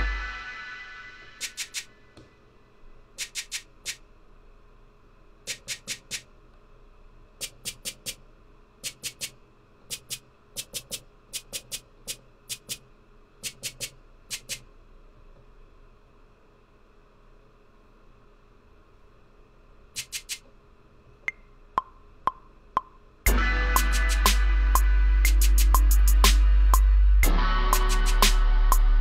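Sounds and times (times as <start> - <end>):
shaker sample hits: 1.3 - 2.0, 3.2 - 4.0, 5.5 - 6.3, 7.4 - 8.2, 8.8 - 12.8, 13.4 - 14.6, 20.0 - 20.4, 21.8 - 28.9.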